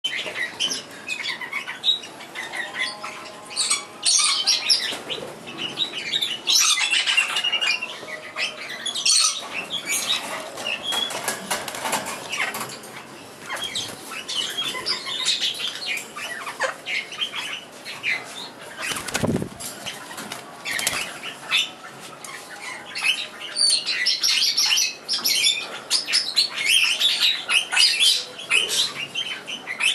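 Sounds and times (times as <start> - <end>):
parakeets chirping and twittering: 0.1 - 29.9
wings fluttering: 18.8 - 21.2.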